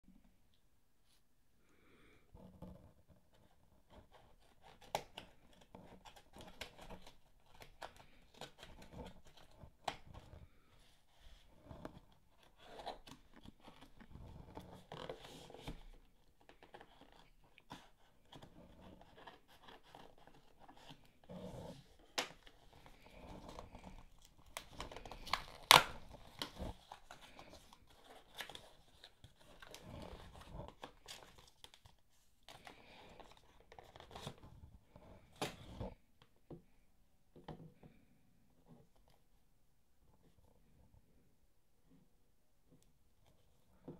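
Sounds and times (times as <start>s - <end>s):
cardboard rustling and scraping: 2.4s - 36.0s
packing tape tearing: 24.6s - 26.6s.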